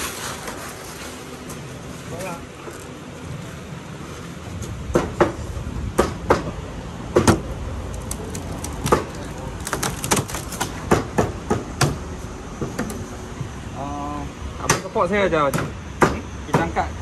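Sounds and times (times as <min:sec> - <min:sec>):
wooden crate knocking and clattering: 0:08.1 - 0:12.0.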